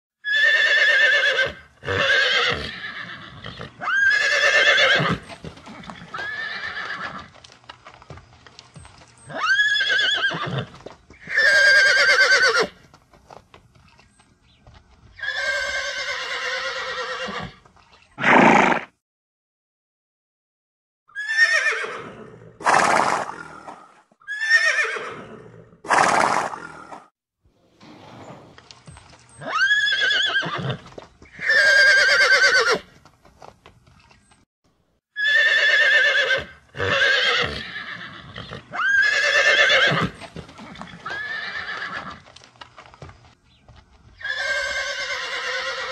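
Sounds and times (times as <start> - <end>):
horses neighing: 0.2 - 7.4, 9.2 - 12.9, 15.1 - 18.9, 21.2 - 27.0, 27.6 - 33.0, 35.2 - 42.4, 44.2 - 45.9.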